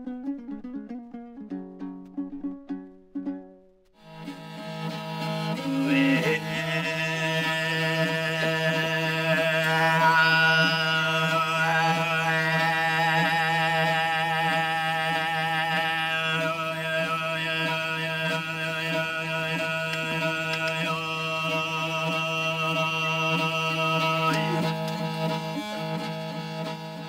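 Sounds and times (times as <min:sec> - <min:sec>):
bowed fiddle: 0:00.0 - 0:27.0
throat singing: 0:05.6 - 0:24.8.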